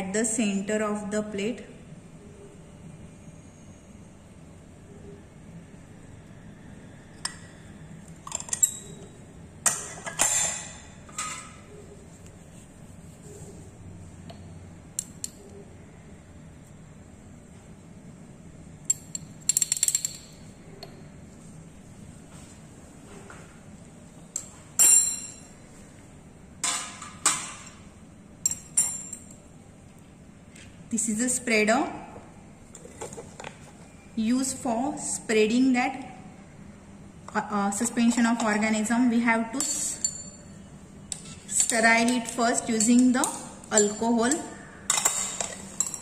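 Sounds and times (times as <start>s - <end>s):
glassware clinking on tile: 41.1s - 46.0s
glass dish clinking and scraping: 44.9s - 46.0s.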